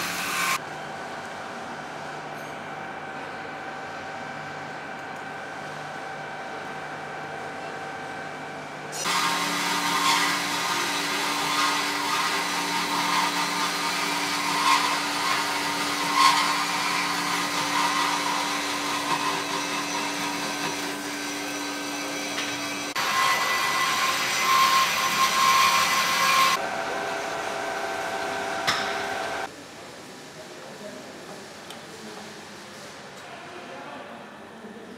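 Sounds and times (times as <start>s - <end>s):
band saw cutting steel: 0.0s - 0.6s, 9.0s - 26.6s
machine running noise: 0.0s - 29.5s.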